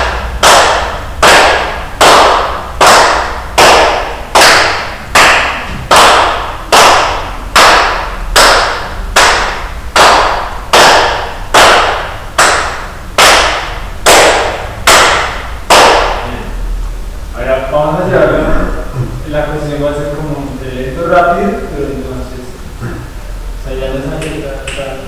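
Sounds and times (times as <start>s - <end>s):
hand claps in a hall: 0.0s - 16.3s, 24.2s - 25.0s.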